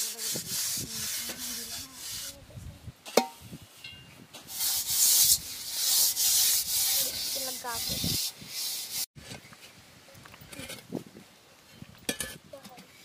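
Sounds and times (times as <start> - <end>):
scrubbing metal pot with sand: 0.0 - 2.4, 4.4 - 9.1.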